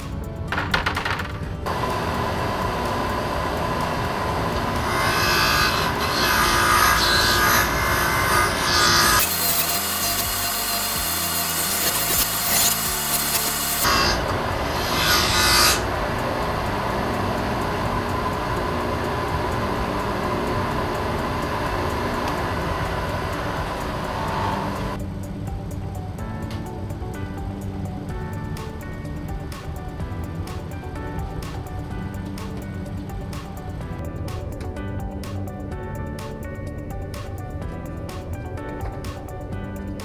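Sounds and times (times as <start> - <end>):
bench grinder running: 1.7 - 25.0
metal part grinding on wheel: 4.8 - 15.9.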